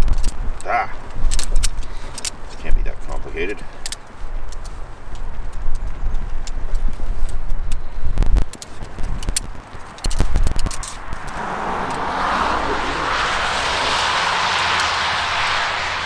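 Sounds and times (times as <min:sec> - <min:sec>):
tent poles clicking and knocking: 0:03.8 - 0:11.4
road traffic rushing: 0:08.6 - 0:16.0.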